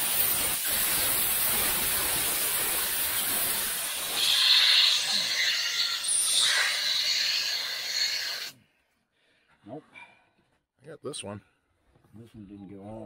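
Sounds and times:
compressed air hissing: 0.0s - 8.6s.

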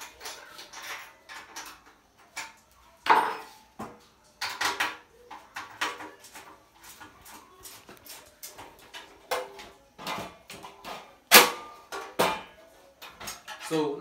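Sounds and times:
metal clinks and scrapes: 0.0s - 3.7s, 11.9s - 14.0s.

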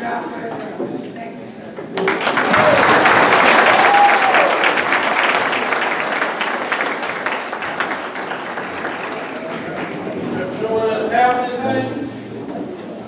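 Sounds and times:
audience applauding: 2.0s - 10.4s.

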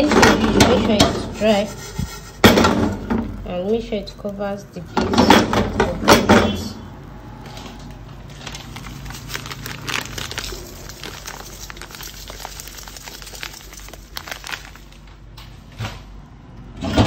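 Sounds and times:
plastic bag crinkling: 7.1s - 15.4s.

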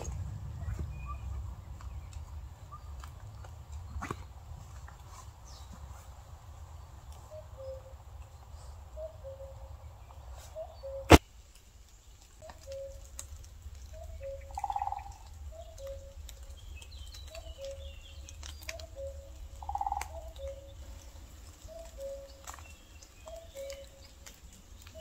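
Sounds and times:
faint high bird chirps: 21.6s - 24.2s.

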